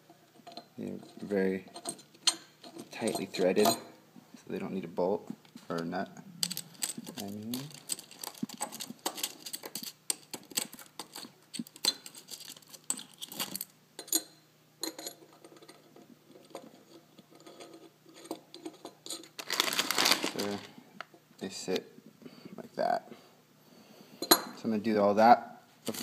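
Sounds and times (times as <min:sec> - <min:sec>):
metal bolts clinking on a bench: 0:00.4 - 0:03.9, 0:06.4 - 0:15.8.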